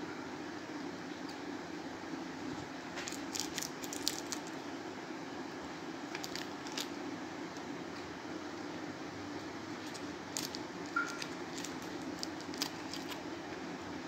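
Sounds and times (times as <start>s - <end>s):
steady low hum: 0.0s - 14.0s
tape crackling: 2.9s - 4.6s, 6.0s - 8.0s, 9.7s - 13.6s.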